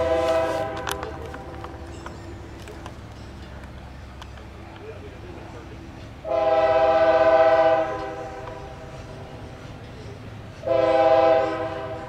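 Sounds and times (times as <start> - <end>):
locomotive air horn blasts: 0.0 - 1.2, 6.2 - 8.9, 10.6 - 12.0
train rumbling: 0.0 - 12.0.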